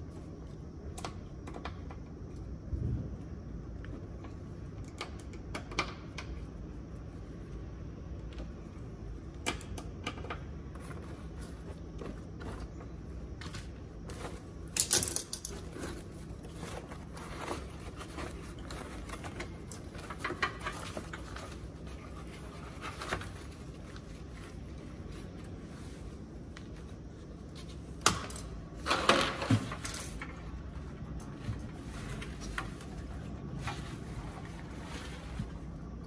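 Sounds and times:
tools clattering: 13.5 - 21.7
foil rustling: 15.5 - 28.0, 30.7 - 36.0.

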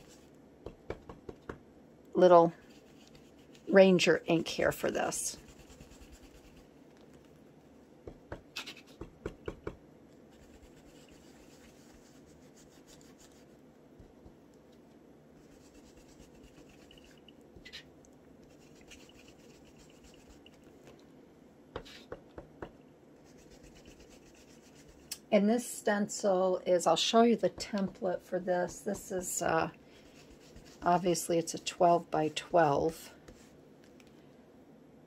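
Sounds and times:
foam tool rubbing on paper: 5.2 - 6.6, 10.3 - 13.5, 15.4 - 17.9, 18.5 - 20.5, 23.2 - 25.1, 28.6 - 32.5.

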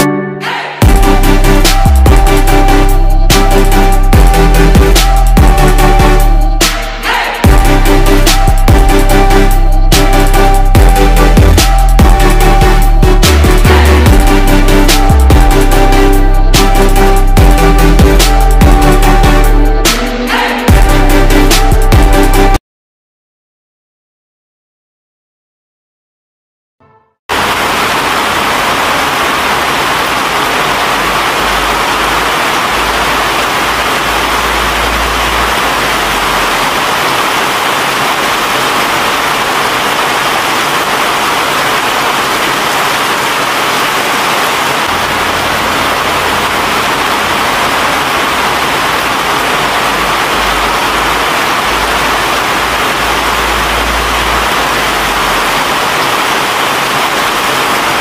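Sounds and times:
loud rushing noise: 27.3 - 58.0.

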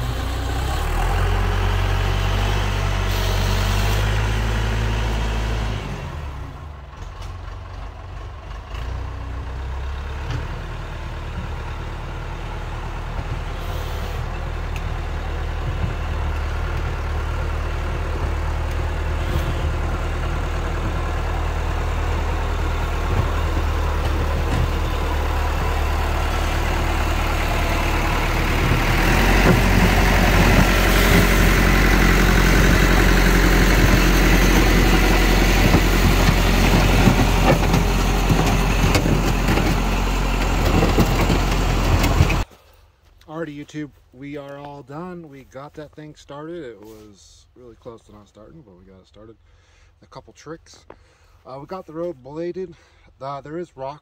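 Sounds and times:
backhoe diesel engine running: 0.0 - 42.8.

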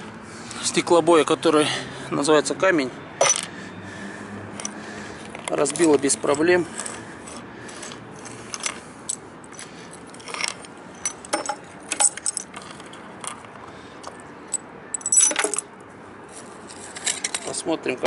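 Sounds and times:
glass clatter: 11.0 - 12.4.

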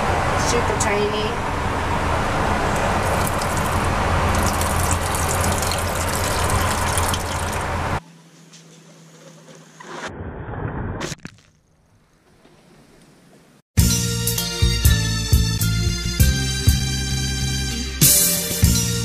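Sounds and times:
water running from faucet: 2.9 - 7.8.

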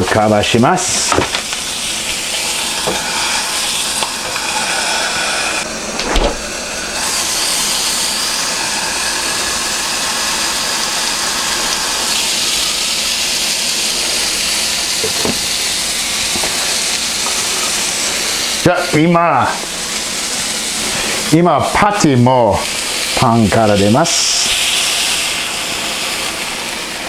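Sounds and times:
burger patty sizzling on griddle: 0.0 - 27.0.

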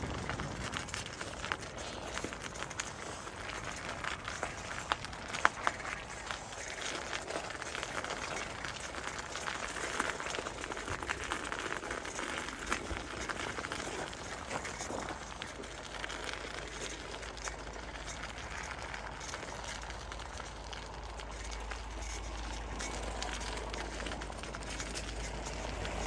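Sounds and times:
low rumble: 0.0 - 3.5
bicycle tyres crunching on ice: 0.0 - 26.0.

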